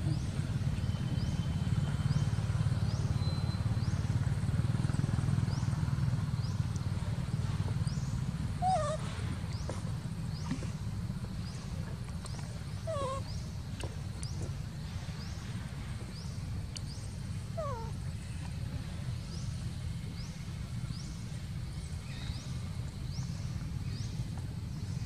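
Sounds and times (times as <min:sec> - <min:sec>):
falling animal calls: 0:08.6 - 0:09.2, 0:12.9 - 0:13.3.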